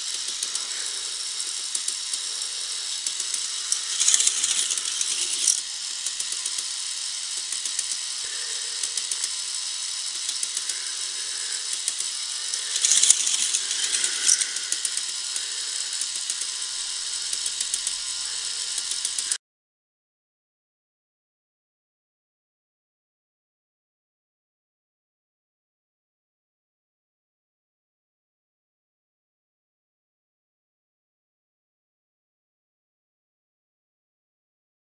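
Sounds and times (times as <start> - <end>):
motorized lift plastic clicking: 0.0 - 19.4
toy car rattling along plastic track: 0.0 - 19.4.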